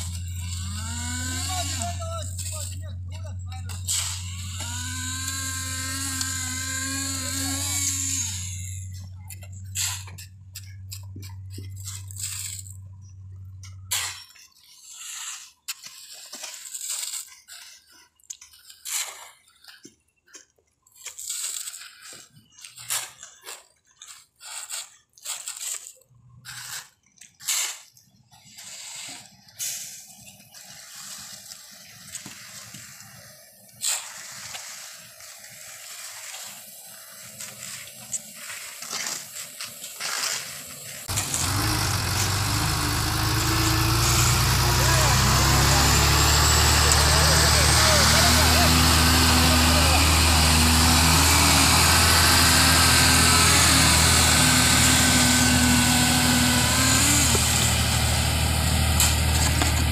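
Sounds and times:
tools scraping wet cement: 0.0 - 59.9
truck engine running: 41.1 - 59.9.

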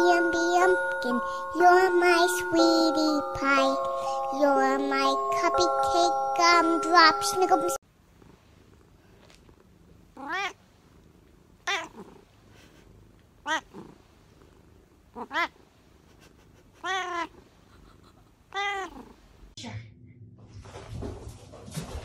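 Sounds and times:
cat meowing: 10.2 - 10.6, 11.7 - 12.0, 15.2 - 15.5, 16.8 - 17.3, 18.5 - 19.1.

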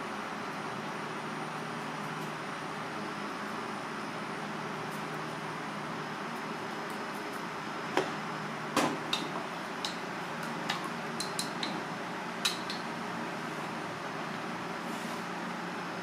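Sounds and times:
steady background hum: 0.0 - 16.0
chopsticks clicking against bowl: 10.7 - 11.8.

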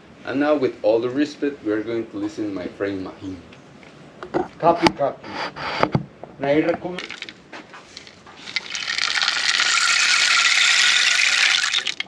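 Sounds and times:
rain stick rattling: 6.9 - 12.0.

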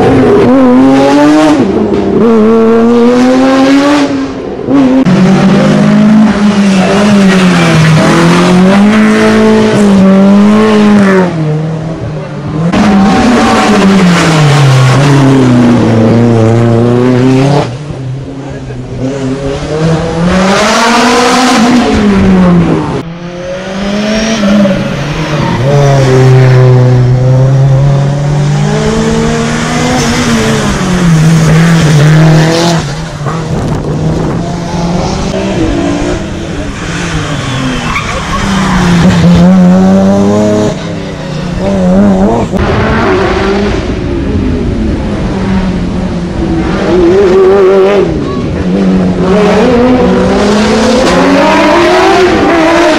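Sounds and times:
race car engines revving: 0.0 - 52.9.

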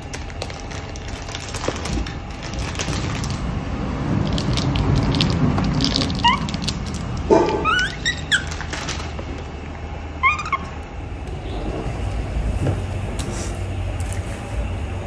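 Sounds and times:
baby monkey squeaking: 6.1 - 6.6, 7.5 - 8.6, 10.2 - 10.8.

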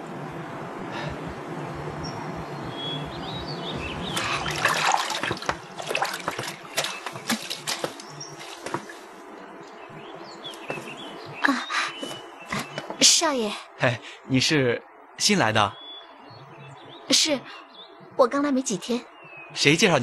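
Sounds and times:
birds chirping: 0.0 - 20.0
water sloshing and splashing: 3.8 - 9.8.

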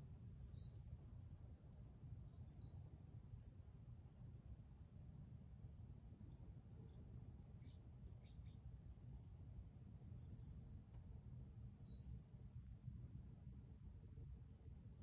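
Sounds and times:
bird chirps: 0.4 - 2.8, 10.2 - 10.9.

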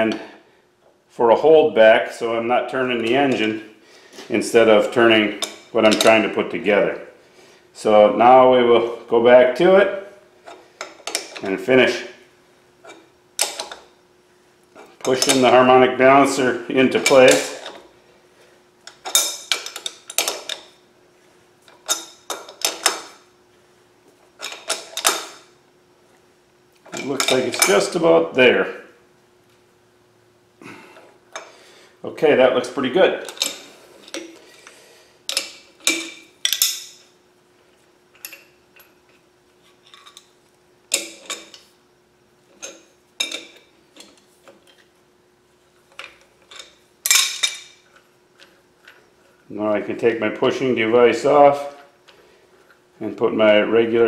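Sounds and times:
faint steady hum: 0.0 - 54.0
steel wrenches clanking: 14.8 - 15.7, 16.9 - 17.8, 18.9 - 20.7, 24.4 - 25.4, 35.3 - 37.1, 42.6 - 44.8, 46.0 - 49.1
wrenches clinking against metal nut: 15.0 - 15.6, 35.3 - 37.0, 42.6 - 44.2, 46.0 - 47.8.

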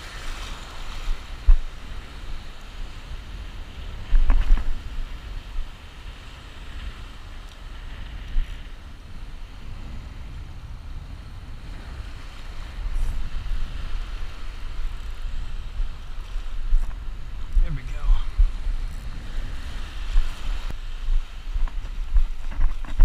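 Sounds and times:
breaking surf: 0.0 - 23.0
wind buffeting microphone: 0.0 - 23.0.

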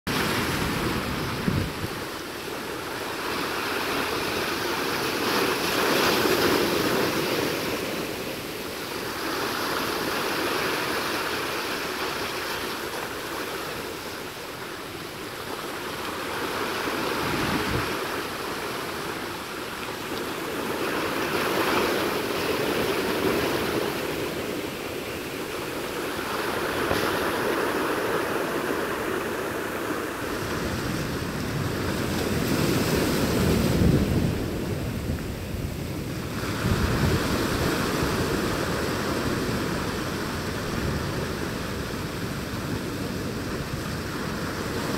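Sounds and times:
waves breaking on rocks: 0.1 - 35.1.

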